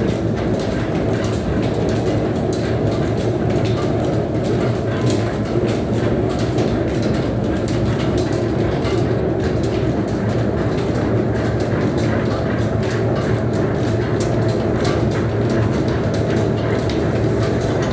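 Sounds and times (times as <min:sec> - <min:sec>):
pulleys and belts rumbling: 0:00.0 - 0:17.9.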